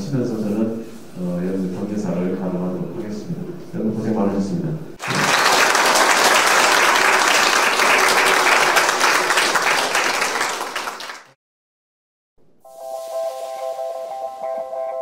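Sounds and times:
audience applauding: 5.0s - 11.4s.

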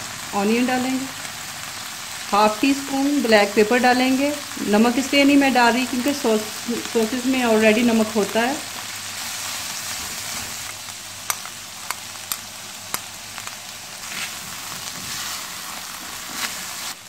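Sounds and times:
vegetables sizzling in oil: 0.0s - 17.0s
spatula stirring: 9.1s - 17.0s.

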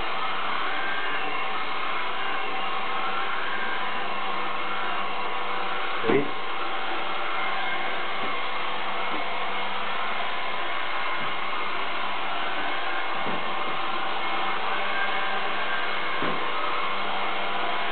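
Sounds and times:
robot vacuum cleaner whirring: 0.0s - 17.9s.

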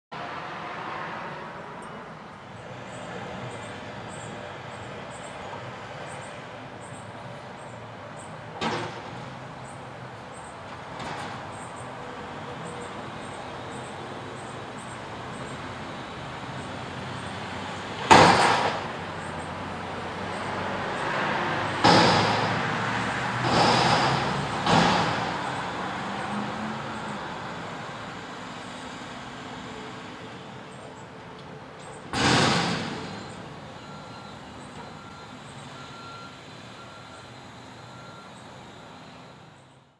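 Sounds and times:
garbage truck engine: 1.7s - 39.9s
hydraulics running: 8.2s - 39.9s
loud metallic bangs of dumpster: 18.0s - 19.0s, 21.7s - 25.8s, 32.1s - 33.9s.

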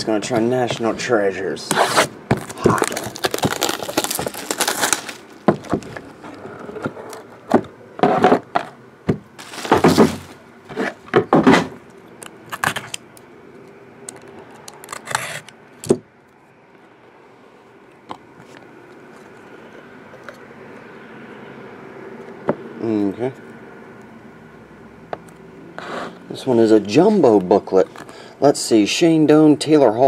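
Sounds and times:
knife slitting foil pack: 1.8s - 5.3s
shrink wrap crinkling and tearing: 1.8s - 6.4s, 9.4s - 10.4s.

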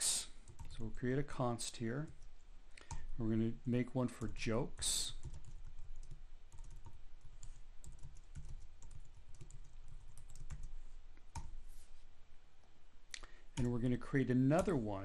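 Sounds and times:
typing on computer keyboard: 0.4s - 0.8s, 5.0s - 11.5s.

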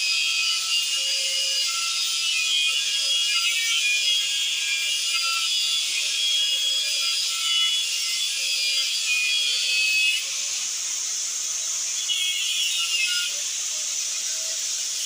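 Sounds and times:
angle grinder cutting steel: 0.1s - 11.2s.

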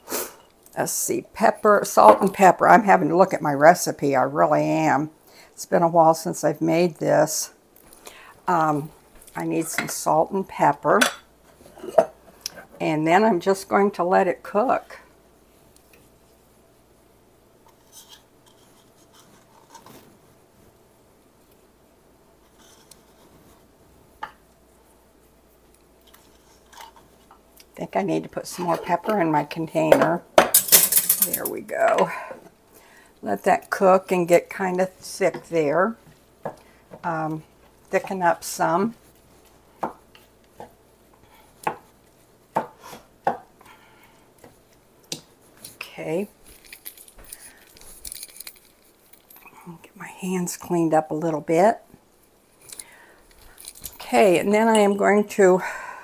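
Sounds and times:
soft rustles: 22.4s - 27.3s, 43.7s - 49.8s.

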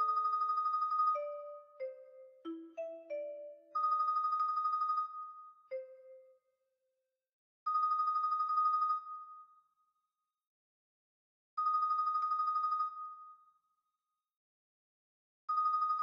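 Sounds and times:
synthesized marimba tremolo: 1.2s - 3.7s.

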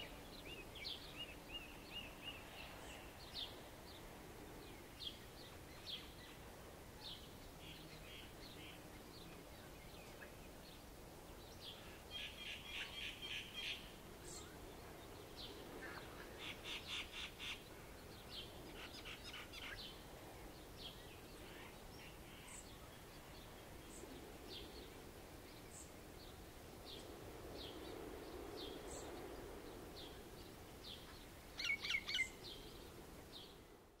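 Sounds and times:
faint surf: 0.0s - 34.0s
birds chirping and calling: 30.9s - 32.7s.

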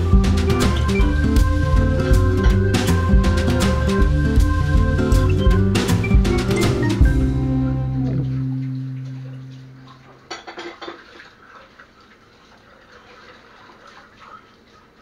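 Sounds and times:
background music note: 0.0s - 10.3s
faint water in sink: 8.0s - 15.0s
dishes and cutlery clattering: 10.0s - 11.4s.

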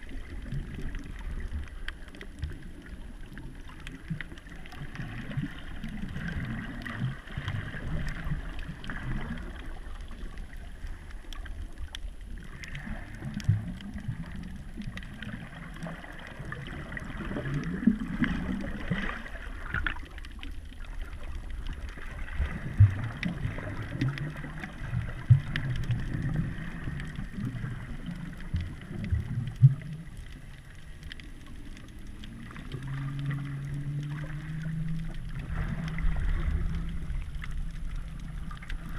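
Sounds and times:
water gurgling underwater: 0.0s - 38.9s
low rumble: 24.8s - 38.9s.

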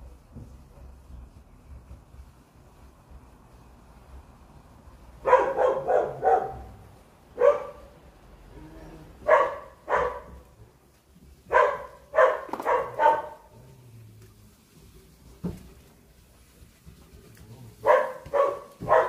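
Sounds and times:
dog barking: 5.2s - 6.8s, 7.4s - 7.9s, 9.2s - 10.4s, 11.5s - 13.5s, 17.8s - 19.0s.

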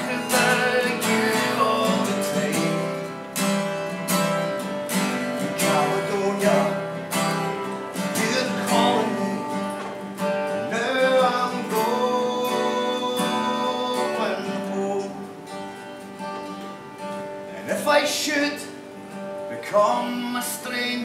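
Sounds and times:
acoustic guitar strumming: 0.0s - 21.0s
person singing long notes: 10.5s - 15.3s.

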